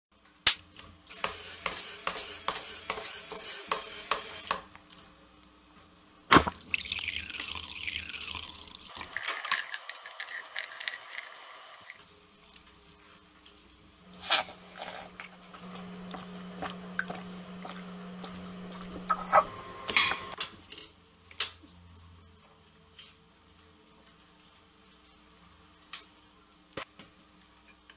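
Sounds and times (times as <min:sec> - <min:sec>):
liquid pouring into a glass: 0:06.6 - 0:09.5
cereal rattling from dispenser: 0:08.9 - 0:12.0
low motor hum: 0:14.0 - 0:20.4.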